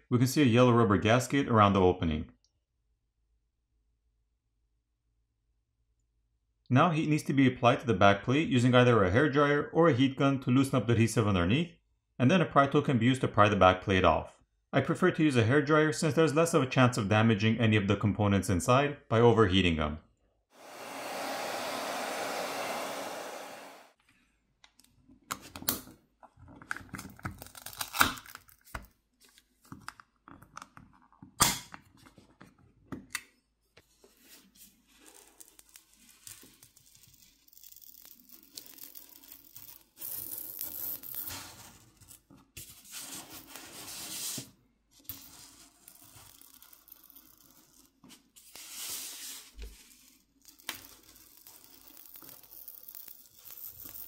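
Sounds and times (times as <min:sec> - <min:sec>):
hairdryer blowing: 0:20.6 - 0:24.0
adhesive tearing and crackling: 0:26.9 - 0:28.7.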